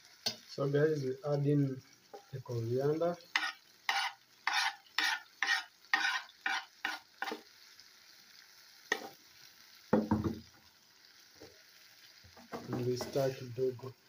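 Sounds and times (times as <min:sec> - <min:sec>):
knife scraping chopping board: 0:03.4 - 0:07.4.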